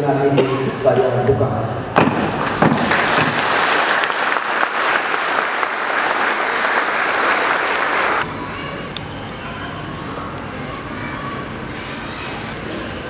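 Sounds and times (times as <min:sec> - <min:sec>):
audience applause: 0:02.2 - 0:08.2.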